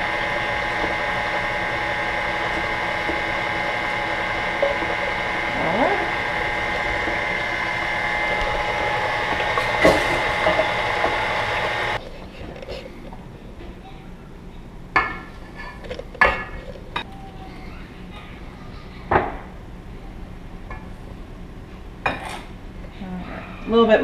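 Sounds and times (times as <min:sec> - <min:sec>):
stand mixer motor whine: 0:00.0 - 0:12.0.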